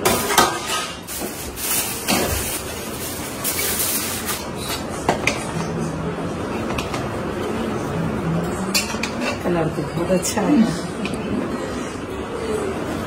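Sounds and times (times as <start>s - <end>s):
utensils clinking on steel pots: 0.0s - 5.5s, 8.4s - 11.2s
aluminium foil crinkling: 1.1s - 4.5s.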